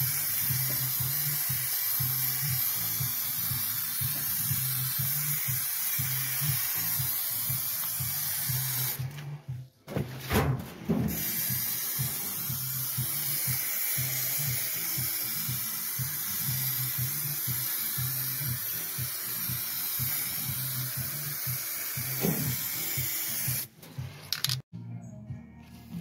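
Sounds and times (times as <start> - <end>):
spraying hiss: 0.0 - 9.0, 11.0 - 23.7.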